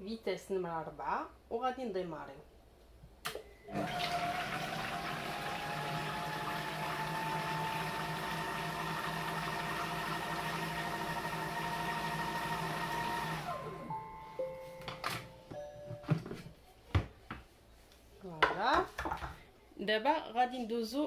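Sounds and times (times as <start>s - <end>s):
food processor motor whine: 3.7s - 14.0s.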